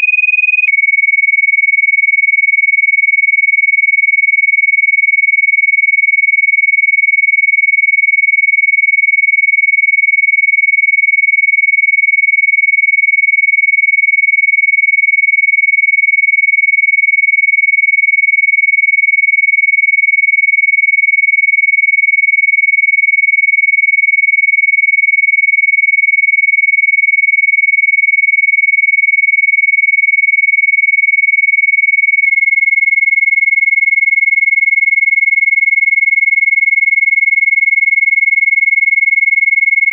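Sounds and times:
high-pitched electronic sine tone: 0.0 - 1.4.

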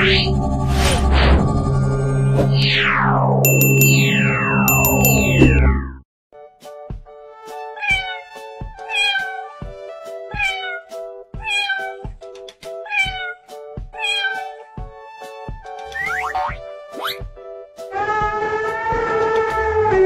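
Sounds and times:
cartoon cat meowing: 7.7 - 9.5, 10.3 - 12.1, 12.8 - 13.4, 14.0 - 14.6.

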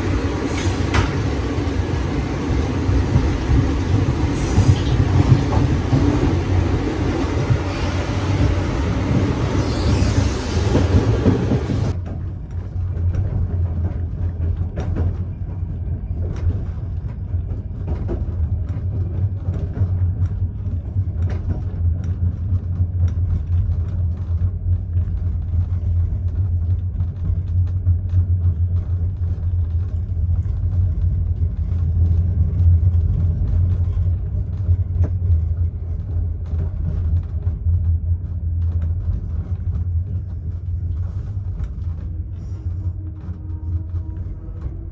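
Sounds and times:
train coach door rattling: 0.0 - 1.9, 2.8 - 12.3
low rumble inside train car: 0.0 - 44.9.

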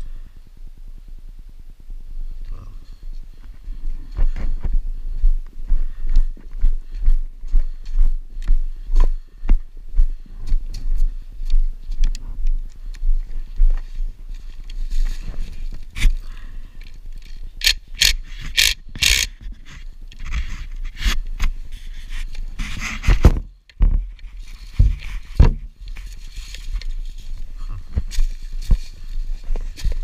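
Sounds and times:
scraping and rustling handling noise: 18.2 - 30.0
heavy thumps: 24.7 - 25.8.

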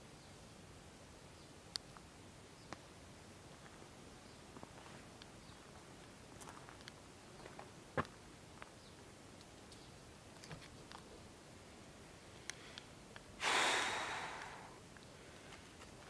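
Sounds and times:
loud breath through nose: 13.4 - 15.4.

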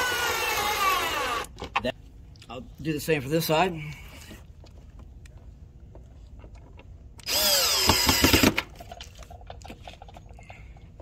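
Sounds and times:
cordless drill driving screw: 0.0 - 1.5, 7.2 - 8.7.

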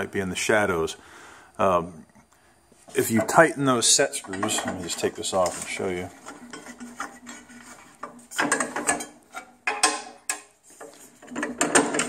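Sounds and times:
metal fence scraping: 4.0 - 10.2.

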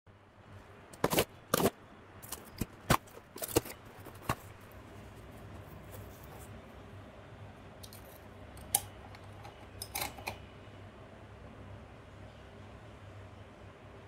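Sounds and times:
cardboard box crackling and scraping: 2.3 - 6.6.

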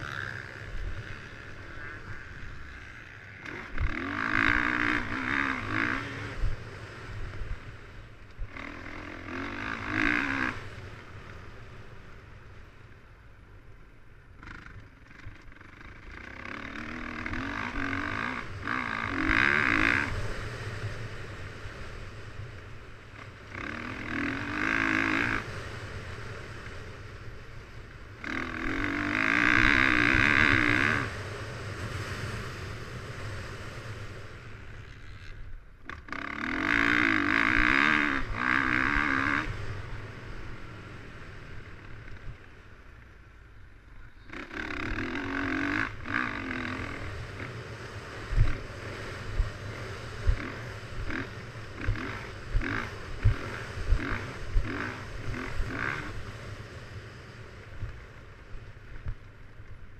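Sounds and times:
dirt bike engine revving: 0.0 - 12.6, 14.3 - 42.4, 44.0 - 58.4
wind rumbling on microphone: 43.6 - 59.9.

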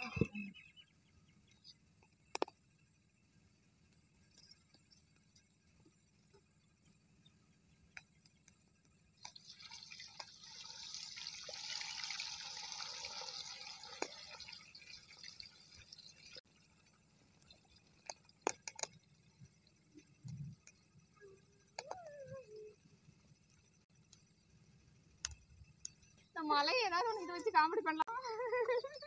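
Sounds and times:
potato slices sizzling in oil: 9.3 - 16.6.

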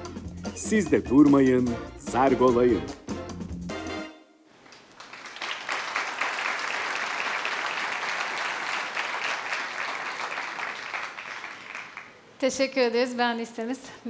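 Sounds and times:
audience applauding: 4.6 - 12.2.

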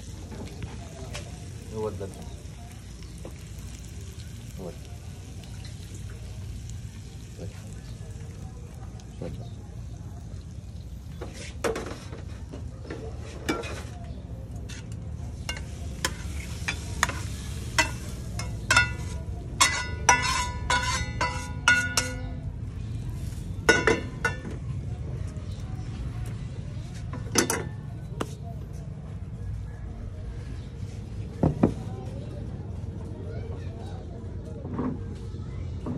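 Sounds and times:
metal spatula scraping a pan: 14.7 - 22.3.

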